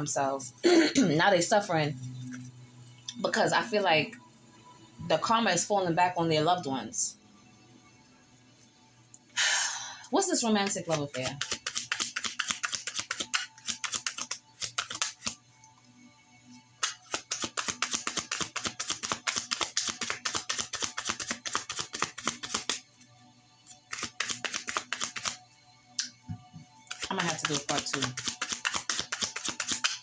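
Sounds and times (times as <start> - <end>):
soft background music: 0.0 - 30.0
cards being shuffled by hand: 10.9 - 15.4, 16.8 - 22.8, 23.9 - 25.4, 26.9 - 30.0.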